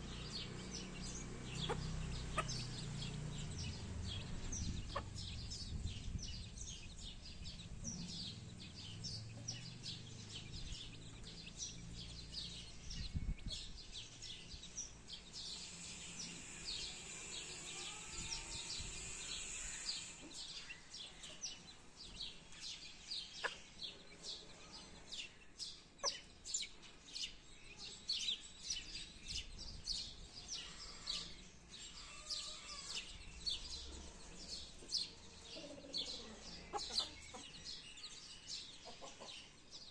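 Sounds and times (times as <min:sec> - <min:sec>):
chicks peeping: 0:00.0 - 0:39.9
hen clucking softly: 0:35.5 - 0:37.5, 0:38.8 - 0:39.5.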